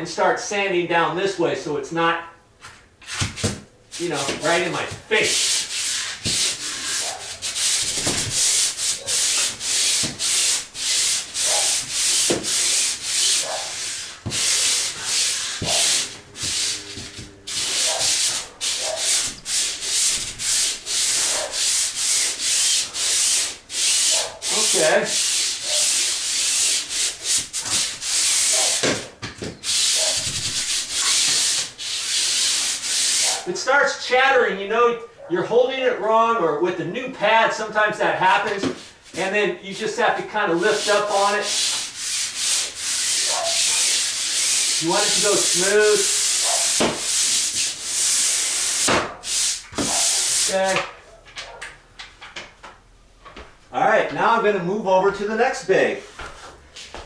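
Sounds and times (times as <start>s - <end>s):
sander rasping on ceiling: 4.0s - 33.5s, 38.2s - 50.8s.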